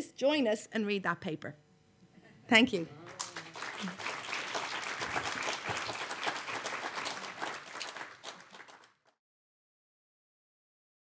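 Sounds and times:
audience applauding: 3.0 - 9.2.

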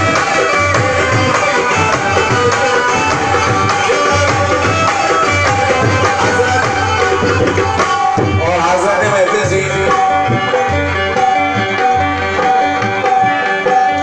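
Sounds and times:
hand drums beating: 0.0 - 14.0
harmonium held notes: 0.0 - 14.0
man singing: 8.3 - 10.7.

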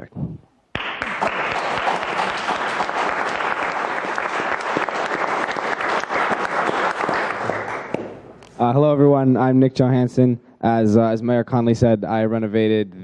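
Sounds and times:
audience applause: 0.8 - 8.2.

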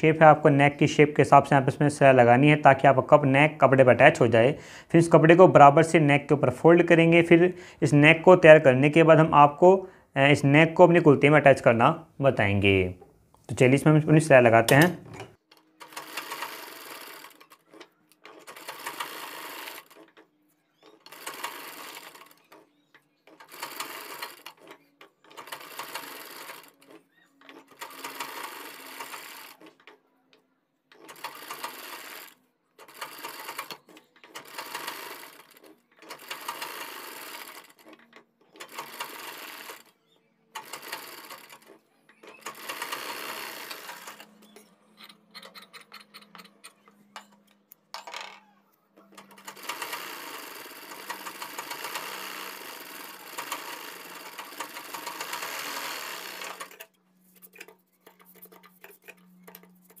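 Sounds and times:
sewing machine stitching: 14.7 - 30.0, 30.9 - 47.5, 49.0 - 60.0.

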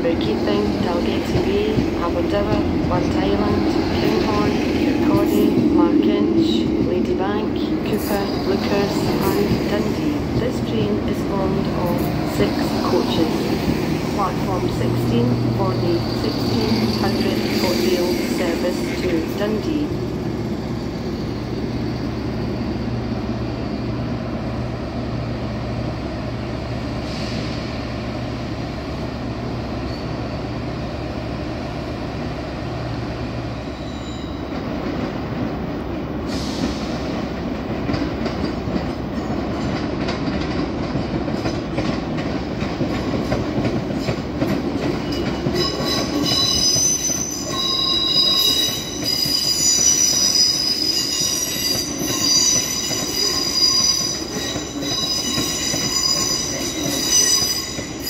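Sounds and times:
electric train hum: 0.0 - 33.9
train wheels squealing: 15.8 - 19.2, 20.4 - 22.8, 29.8 - 30.6, 33.6 - 34.7, 44.8 - 58.0.

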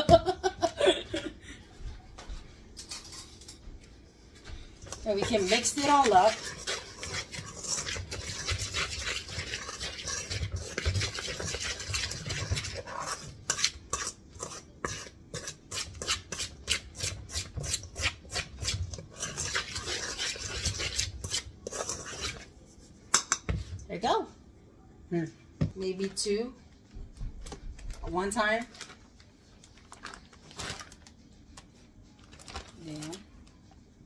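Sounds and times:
metal utensil scraping steel bowl: 4.9 - 22.5.

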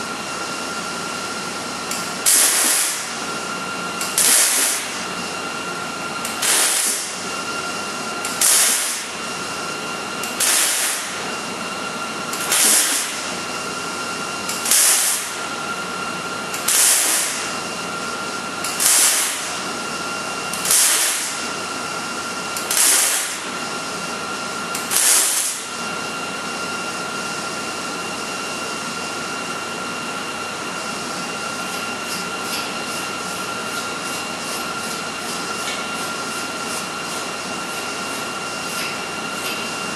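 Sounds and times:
welding arc bursts: 2.2 - 3.2, 4.0 - 5.0, 6.4 - 7.2, 8.3 - 9.1, 10.3 - 11.2, 12.4 - 13.2, 14.6 - 15.4, 16.6 - 17.5, 18.7 - 19.6, 20.6 - 21.4, 22.6 - 23.5, 24.8 - 25.7.

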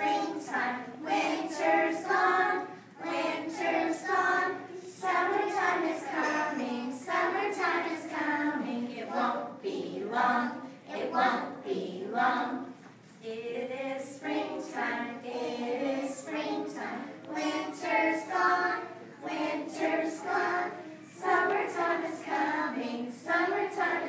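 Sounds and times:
children singing in unison: 0.0 - 24.0.

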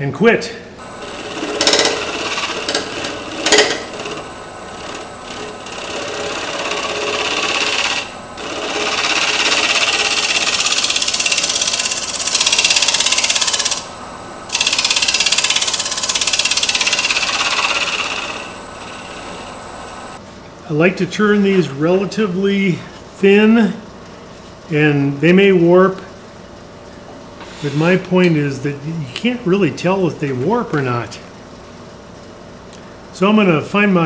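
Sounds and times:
lathe tool scraping wood: 0.8 - 20.2
thin high whine: 0.8 - 20.2.

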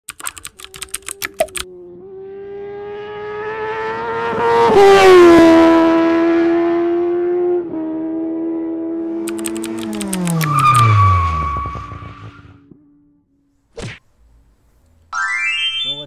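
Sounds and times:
quick clicks: 0.1 - 1.7, 9.2 - 10.9
vehicle engine sound effect: 0.4 - 3.9, 9.0 - 12.8.

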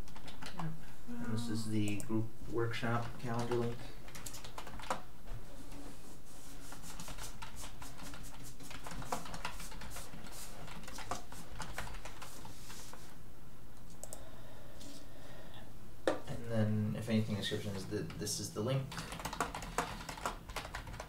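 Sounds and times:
keyboard typing clicks: 3.3 - 5.0.

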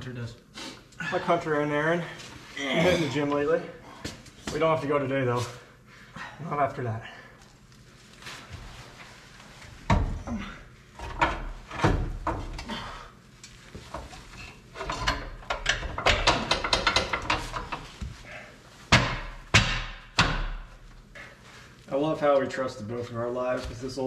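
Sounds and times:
metal clanks and knocks of tools: 13.9 - 18.0.

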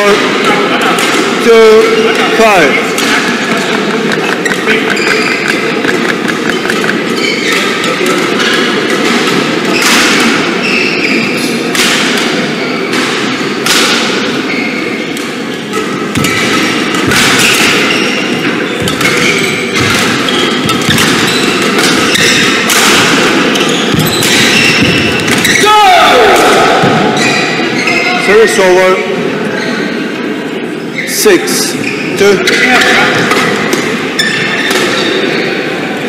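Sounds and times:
low background noise: 0.0 - 36.0
racket hitting shuttlecock: 4.1 - 10.6, 11.6 - 14.4, 15.1 - 25.6, 32.5 - 35.2
shoe squeaks: 4.2 - 8.7, 10.6 - 11.6, 14.4 - 15.1, 15.7 - 22.7, 23.4 - 25.7, 27.1 - 28.3, 29.5 - 30.0, 30.8 - 33.0, 34.1 - 35.6.

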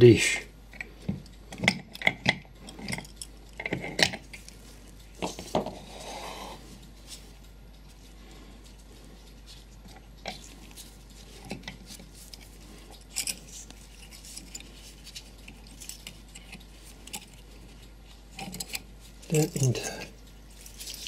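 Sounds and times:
small metal parts clicking: 11.5 - 21.0.

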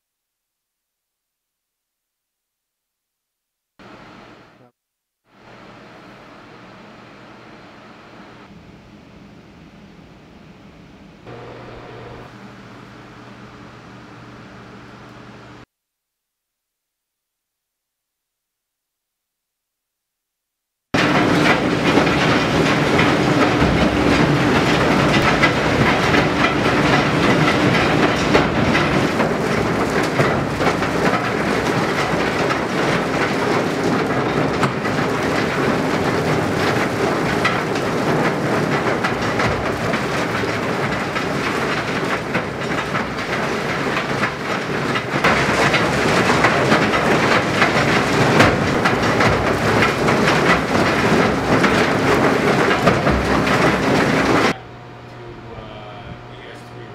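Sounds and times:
railcars rattling clatter: 21.0 - 54.6.

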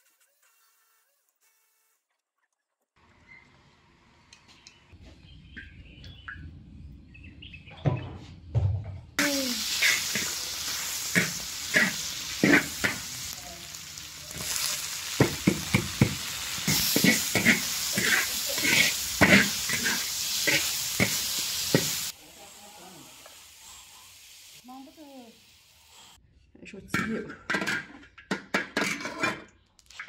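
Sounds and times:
food sizzling in hot oil: 9.2 - 26.2
metal spatula scraping wok: 9.6 - 22.0.

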